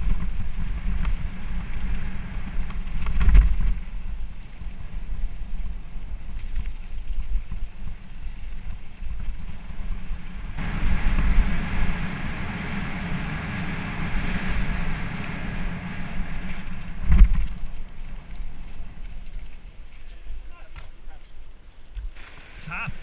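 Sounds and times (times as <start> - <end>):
tyres hissing on loose dirt: 0.0 - 23.0
wind rumble on microphone: 0.0 - 23.0
sharp thump of bike: 17.0 - 17.6.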